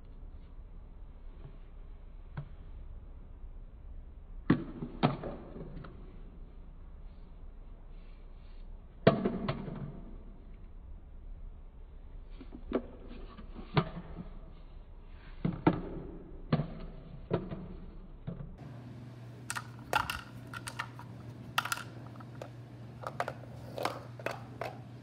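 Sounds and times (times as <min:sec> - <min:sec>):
plastic toy truck clicking on tiled floor: 0:19.5 - 0:24.8.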